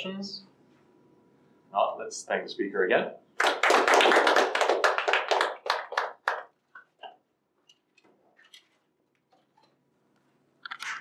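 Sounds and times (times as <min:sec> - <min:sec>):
audience clapping: 0:03.4 - 0:06.9.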